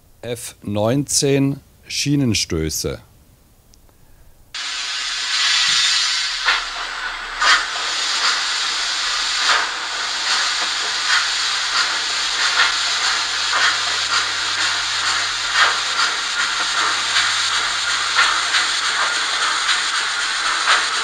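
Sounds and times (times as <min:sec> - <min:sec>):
steady steam hiss: 0:04.0 - 0:21.0.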